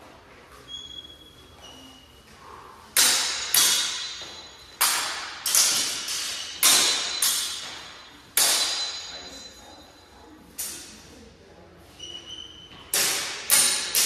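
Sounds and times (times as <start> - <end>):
swords clashing: 3.0 - 9.6, 10.6 - 10.9, 12.9 - 14.0.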